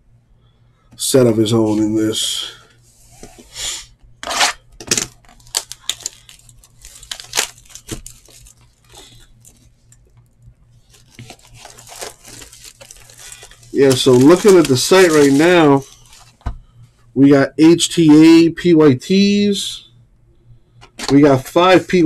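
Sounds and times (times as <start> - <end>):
packaging tearing and crinkling: 4.2 - 9.7, 10.8 - 16.4.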